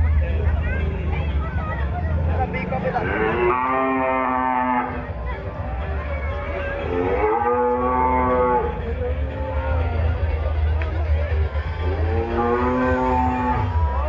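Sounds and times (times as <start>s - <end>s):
cow mooing: 2.7s - 5.0s, 6.5s - 8.8s, 11.9s - 13.8s.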